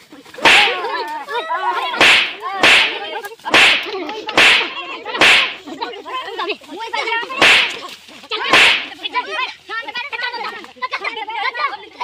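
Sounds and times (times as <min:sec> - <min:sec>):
stick cracks striking person: 0:00.4 - 0:00.8, 0:02.0 - 0:05.6, 0:07.4 - 0:07.8, 0:08.5 - 0:08.9.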